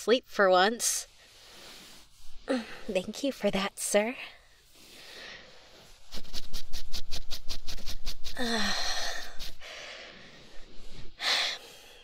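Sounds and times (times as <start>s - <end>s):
woman huffing rapid breaths: 8.3s - 12.0s.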